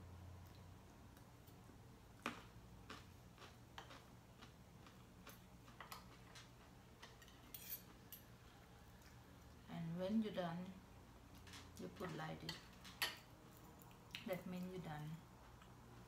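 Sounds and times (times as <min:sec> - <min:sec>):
cutlery clicking on a plate: 0:05.3 - 0:08.3.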